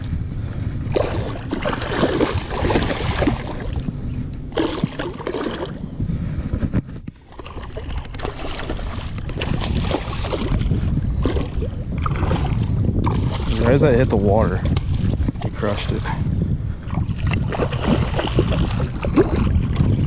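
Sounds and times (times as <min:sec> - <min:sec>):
wind buffeting microphone: 0:00.0 - 0:20.0
water sloshing and splashing: 0:00.9 - 0:03.9, 0:04.5 - 0:05.8, 0:07.2 - 0:16.3, 0:16.9 - 0:20.0.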